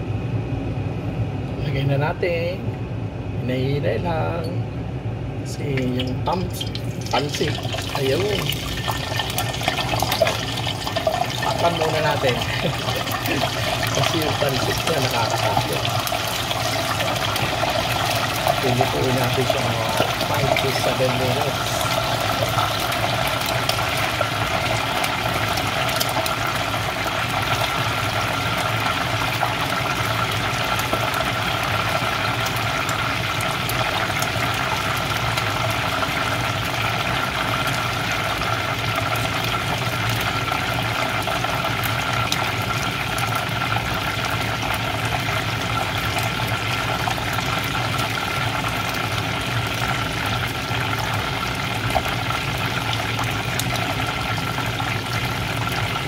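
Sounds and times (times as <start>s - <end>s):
chicken deep-frying in oil: 5.5s - 56.0s.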